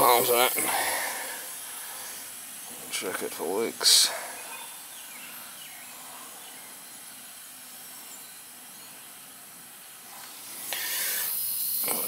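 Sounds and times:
outdoor background noise: 0.0 - 12.0
faint high chirps: 4.2 - 9.5.

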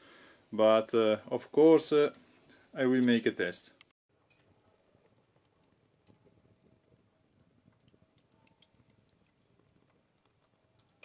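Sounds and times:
faint clicks and crackles of fire: 3.7 - 11.0.

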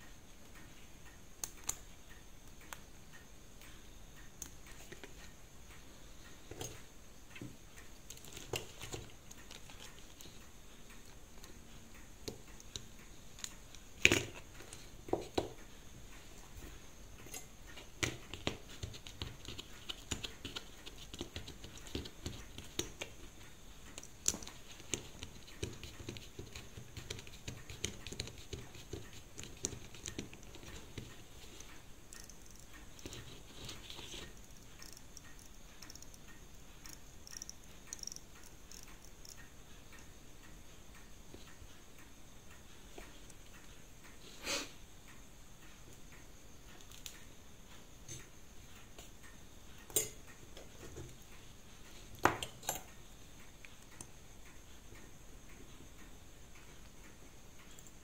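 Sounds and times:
small clicks and taps of watch: 34.2 - 40.1.

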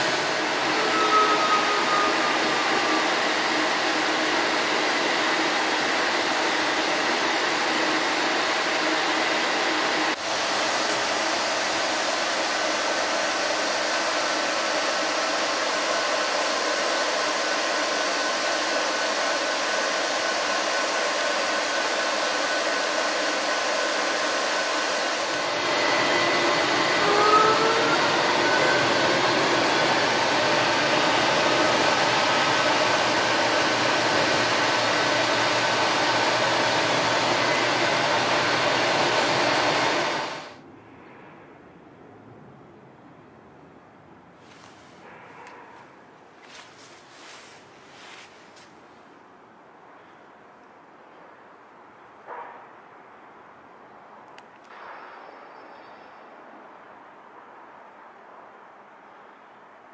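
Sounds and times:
streetcar interior noise: 0.0 - 5.6, 27.0 - 35.4
brief rising whines: 0.0 - 12.0, 24.6 - 40.6.

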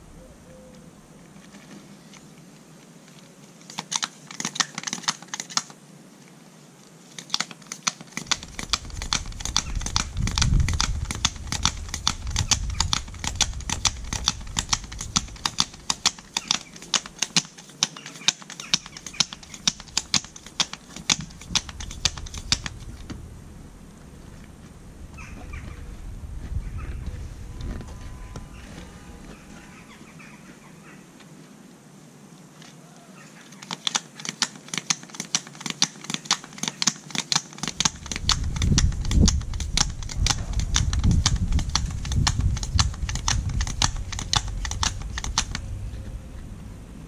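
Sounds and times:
hand tyre pump clicking: 3.7 - 5.7, 7.2 - 23.1, 33.6 - 45.7.

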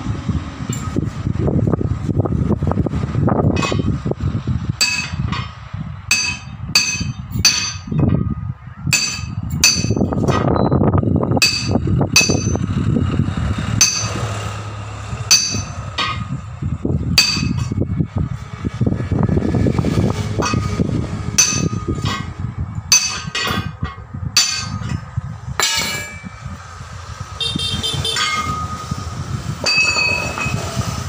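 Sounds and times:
hammer striking metal lever: 9.0 - 10.5.

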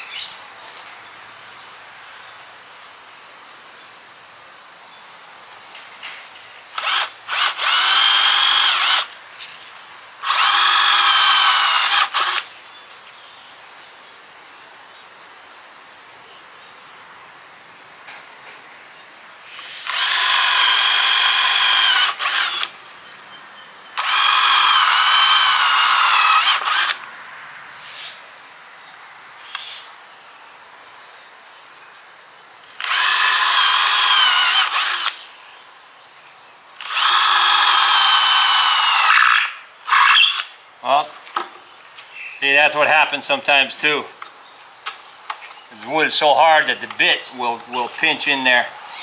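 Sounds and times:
power drill boring into wood: 6.8 - 9.1, 10.2 - 12.5, 19.8 - 22.7, 24.0 - 27.0, 32.8 - 35.2, 36.8 - 40.5.

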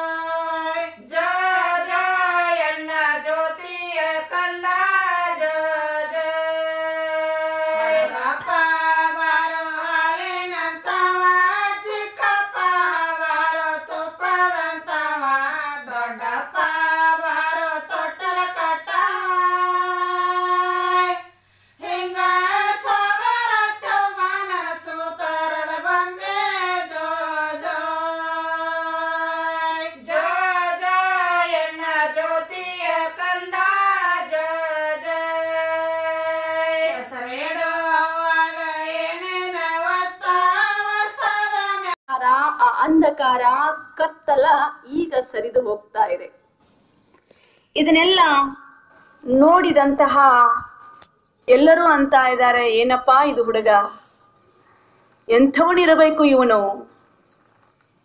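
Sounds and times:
women singing a lullaby: 0.0 - 42.1.

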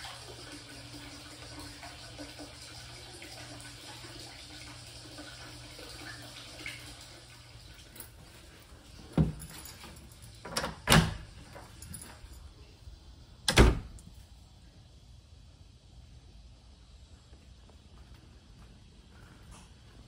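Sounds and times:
water trickling into stone bath: 0.0 - 10.5.

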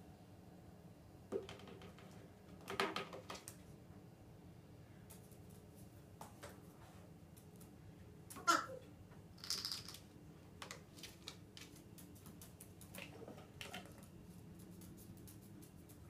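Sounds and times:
parrot call: 8.4 - 8.8.

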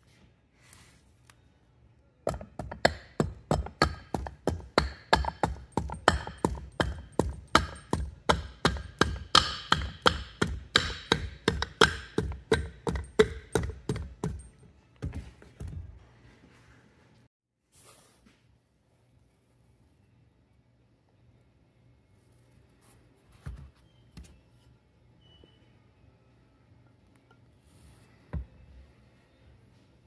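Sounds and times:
hand tool knocking on metal: 2.3 - 15.9.

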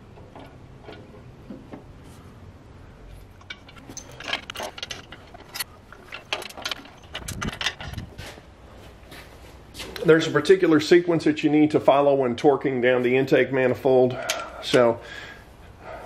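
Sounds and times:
metal clinks and knocks: 3.2 - 8.4.

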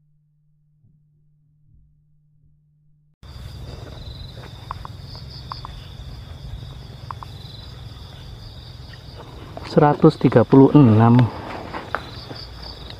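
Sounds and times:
faint steady hum: 3.2 - 12.9
insects trilling: 3.2 - 12.9.

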